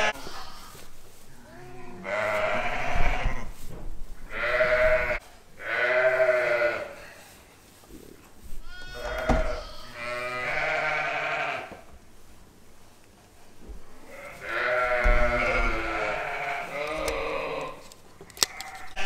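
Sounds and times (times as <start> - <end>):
sheep bleating: 0.0 - 0.8, 1.4 - 3.5, 4.3 - 7.1, 8.6 - 11.8, 14.1 - 17.8.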